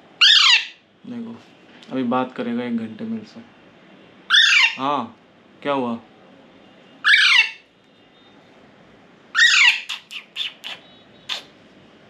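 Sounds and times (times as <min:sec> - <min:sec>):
parakeet chick squawking: 0:00.2 - 0:00.8, 0:04.3 - 0:04.8, 0:07.0 - 0:07.6, 0:09.3 - 0:11.5
short sharp chick calls: 0:09.6 - 0:11.6.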